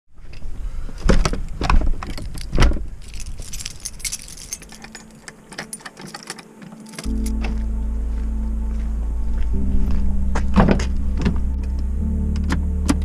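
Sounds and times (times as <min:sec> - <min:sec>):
light metallic jingling: 0:02.0 - 0:07.4
dull heavy thumps: 0:10.0 - 0:11.5.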